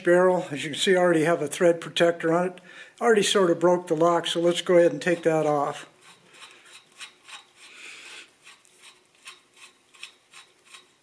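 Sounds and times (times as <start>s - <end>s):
metal-on-metal rasping: 4.4s - 11.0s
small irregular ticks: 6.0s - 11.0s.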